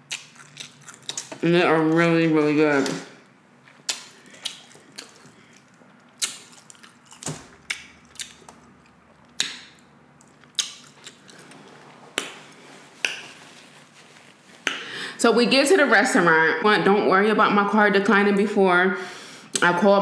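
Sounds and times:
person chewing food: 0.0 - 1.4, 3.8 - 14.8
wet mouth smacks and clicks: 3.9 - 5.2, 6.1 - 8.6, 9.3 - 11.2.

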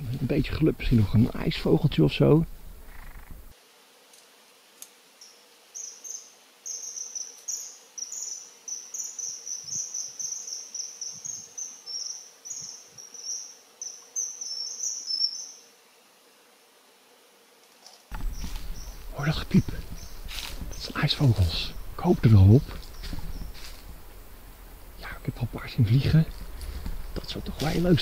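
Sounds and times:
kingfishers calling shrill peeps: 18.1 - 23.8.

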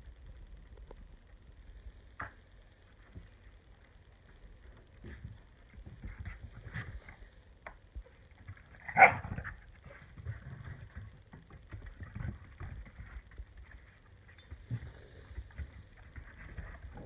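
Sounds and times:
dog barking: 8.9 - 9.4.

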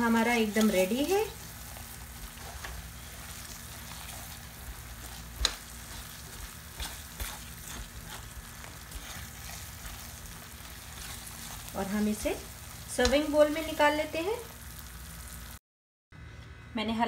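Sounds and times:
spatula stirring and scraping: 0.0 - 13.9
food sizzling in ghee: 0.0 - 15.6.

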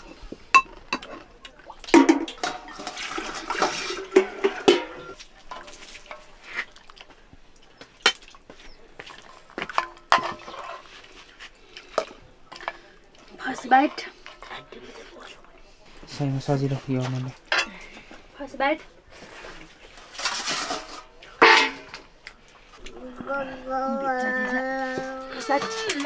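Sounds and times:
pots and dishes clinking: 0.0 - 1.3, 1.9 - 6.4, 8.0 - 8.3, 9.0 - 10.9, 17.4 - 18.0, 20.2 - 22.1, 25.0 - 26.0
water pouring and splashing: 0.0 - 15.4, 19.2 - 23.2.

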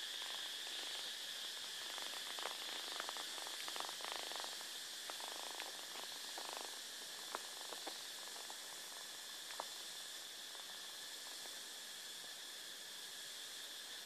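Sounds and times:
faint steady hiss: 0.0 - 14.0.

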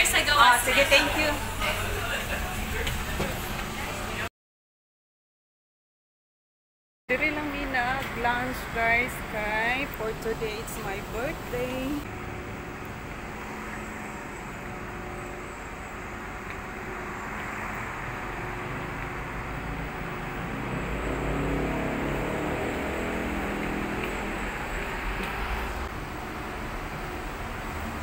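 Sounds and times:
road traffic noise: 0.0 - 4.3, 7.1 - 28.0
vehicle engine rumble: 7.1 - 28.0.

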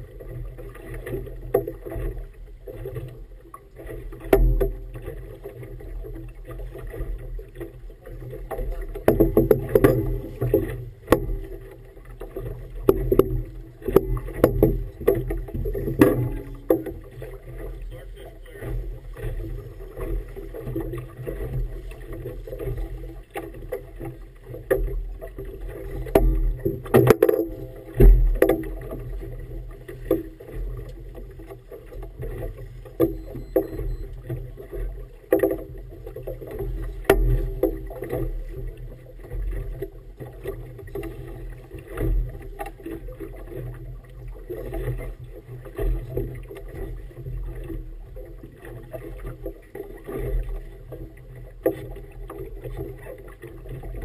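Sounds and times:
boat engine rumble: 0.0 - 54.0
water splashing against hull: 0.0 - 54.0.

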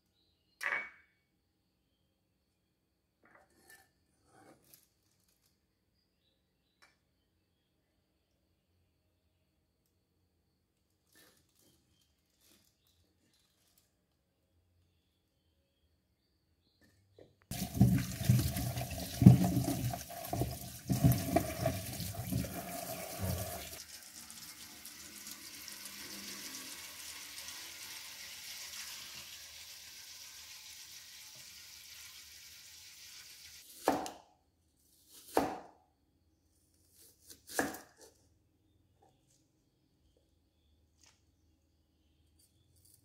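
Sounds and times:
tap water running into metal bowl: 17.5 - 33.6.

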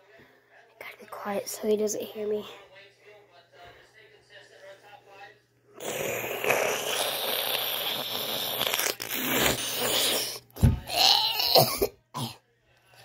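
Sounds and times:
slurping through a drinking straw: 5.8 - 10.6.

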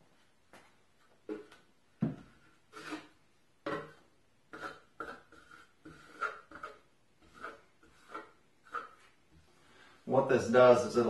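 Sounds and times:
trowel scraping squeaky rubs: 2.7 - 3.2, 3.8 - 9.2.

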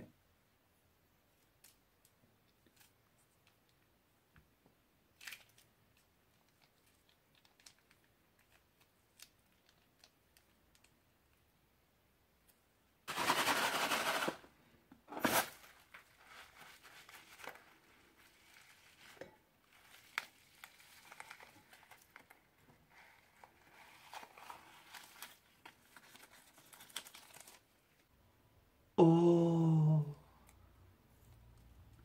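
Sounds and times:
crinkling and rustling: 5.2 - 10.9, 13.1 - 28.1.

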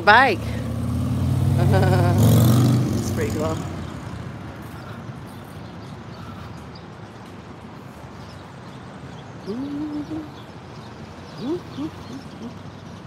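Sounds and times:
distant traffic: 0.0 - 13.0
motorcycle engine passing: 0.2 - 5.1.

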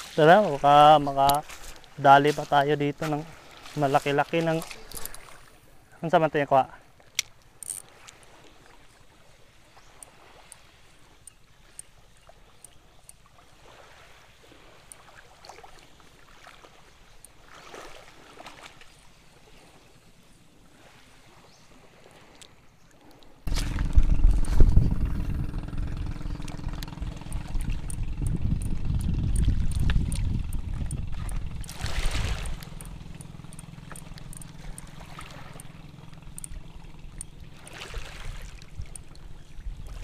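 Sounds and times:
trickle of shallow water: 0.0 - 5.9, 6.9 - 24.7, 26.0 - 40.0
small clicks: 7.1 - 8.2, 26.4 - 37.4
loud low rushing noise: 23.5 - 30.7.

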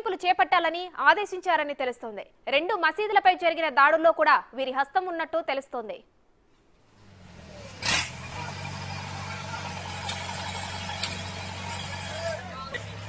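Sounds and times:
backhoe diesel engine running: 7.0 - 13.0.

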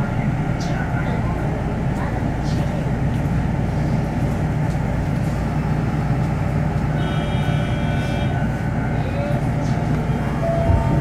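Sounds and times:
low hum of train equipment: 0.0 - 11.0
faint high steady tones: 10.0 - 11.0.

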